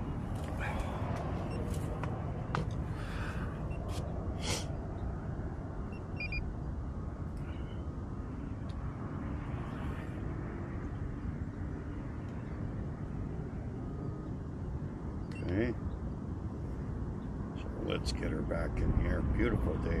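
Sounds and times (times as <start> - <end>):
wind buffeting microphone: 18.4 - 20.0.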